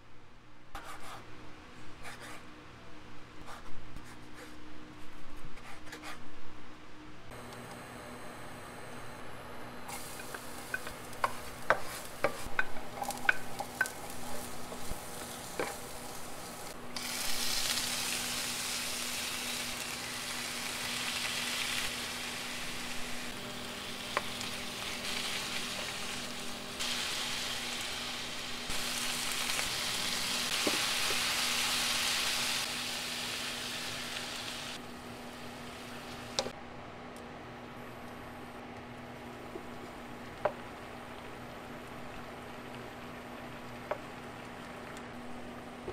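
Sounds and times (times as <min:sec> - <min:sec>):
food frying in oil: 0:09.9 - 0:34.8, 0:39.4 - 0:45.8
wooden spatula scraping a pan: 0:10.0 - 0:16.4.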